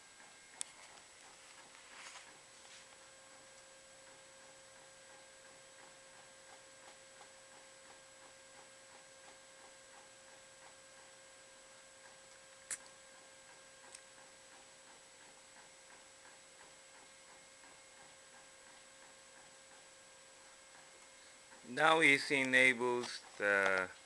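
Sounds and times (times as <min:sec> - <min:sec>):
inkjet printer printing: 0:00.0 - 0:12.3, 0:13.0 - 0:24.0
sharp click: 0:12.7 - 0:12.9.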